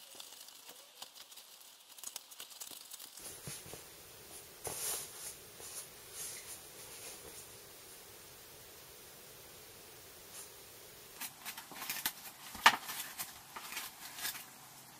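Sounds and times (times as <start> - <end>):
packing foam crinkling: 0.0 - 7.8, 10.3 - 14.9
rustling against foam: 3.1 - 14.9.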